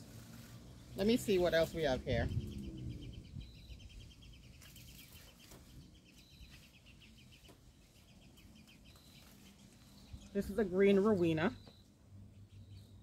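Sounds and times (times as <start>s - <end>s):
leaves rustling: 0.0s - 3.1s, 4.3s - 11.6s.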